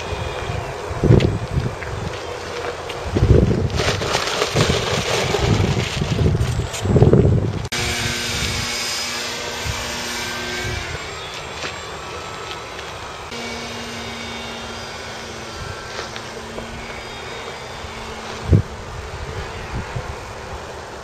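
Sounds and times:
model airplane motor humming: 7.2 - 20.8.

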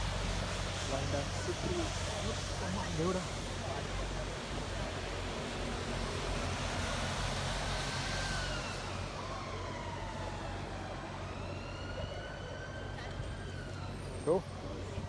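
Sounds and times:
city traffic noise: 0.0 - 15.0
faint emergency siren: 5.9 - 15.0.

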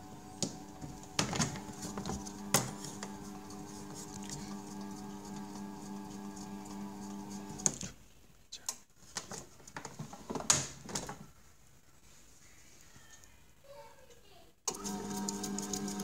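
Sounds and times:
kneading motor humming: 0.0 - 7.6, 14.7 - 16.0.

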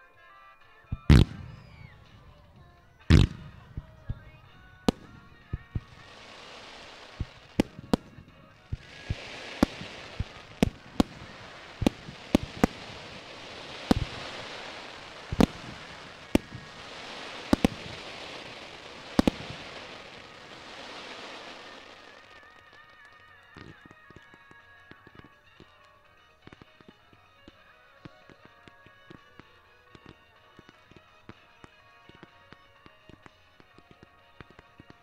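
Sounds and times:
firework hiss: 1.1 - 22.6
firework shells banging: 1.1 - 22.6.

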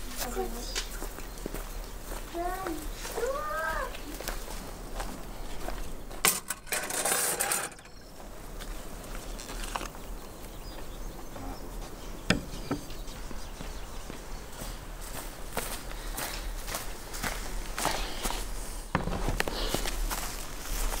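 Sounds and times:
metal skewers clattering on wood: 6.2 - 8.0
knife knocking on cutting board: 12.3 - 12.9.

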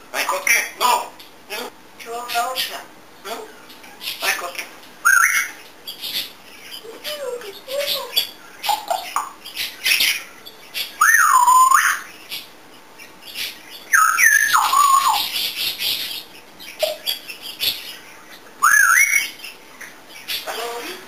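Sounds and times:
parrot whistling and squawking: 5.0 - 5.6, 10.9 - 12.1, 13.9 - 16.0, 18.6 - 19.4.

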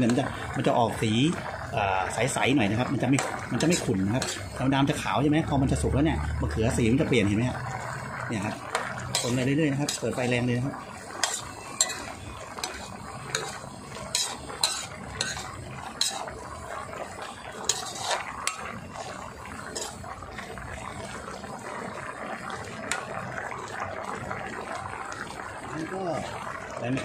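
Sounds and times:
curry bubbling: 0.0 - 27.0
metal spoon scraping a pan: 2.6 - 5.1, 8.4 - 20.4.

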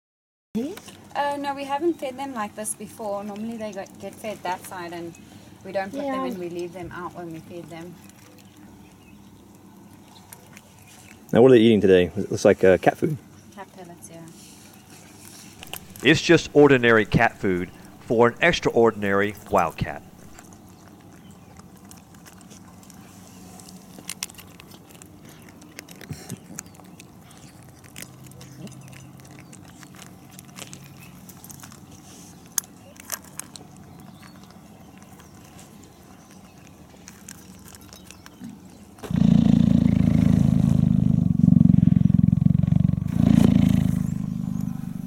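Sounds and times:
kitten crunching dry food: 7.2 - 11.8, 14.3 - 40.9
loud low rumble: 39.7 - 45.0.

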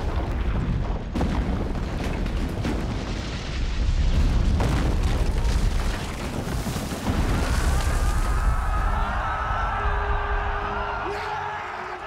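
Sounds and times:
rumble of falling masonry: 0.0 - 9.0.

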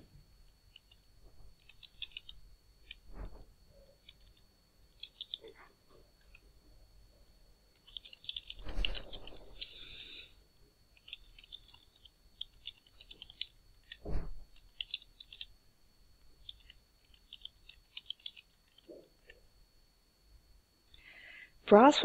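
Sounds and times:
loud thump: 14.0 - 14.4.

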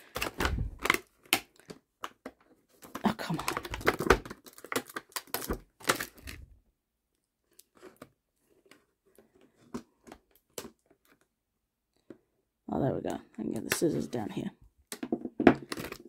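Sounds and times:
plastic packaging crackling: 0.0 - 6.5.

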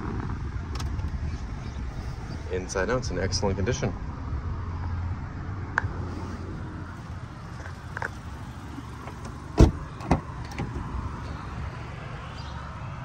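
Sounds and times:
steady low rumble: 0.0 - 12.6
car door shutting: 9.0 - 10.9.

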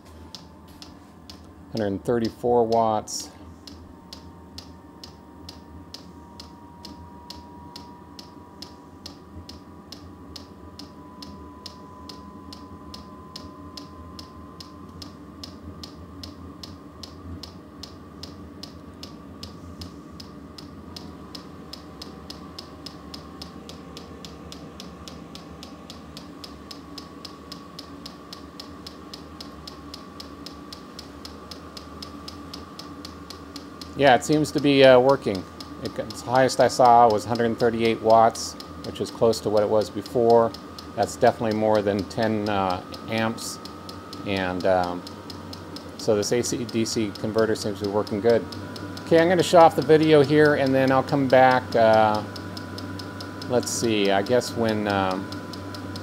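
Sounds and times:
heater blower humming: 0.0 - 56.0
fuel pump ticking: 20.2 - 56.0.

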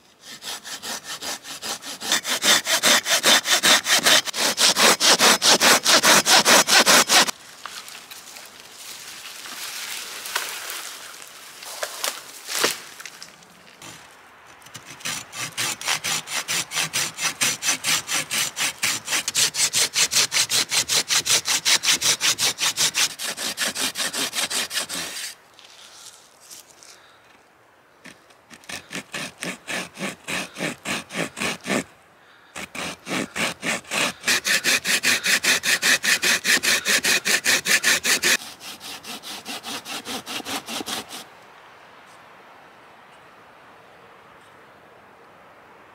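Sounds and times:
hand saw cutting wood: 0.2 - 7.4, 14.7 - 25.4, 28.1 - 31.9, 32.6 - 41.3
branch snapping: 9.4 - 13.5.

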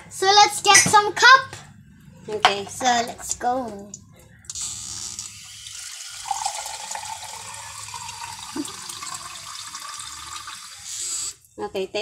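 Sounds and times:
water pouring into a glass: 5.6 - 11.0.

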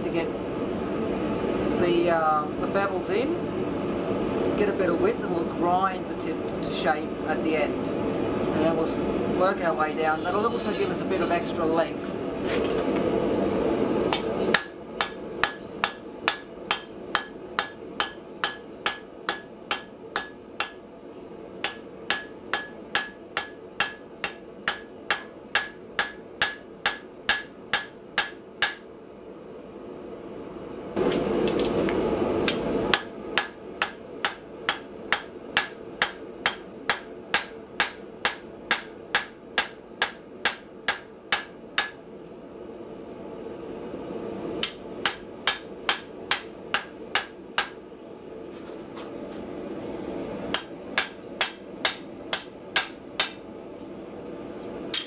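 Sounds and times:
hammer striking steel on anvil: 14.1 - 20.8, 21.6 - 28.8, 32.5 - 42.0, 44.6 - 47.8, 50.5 - 53.4.

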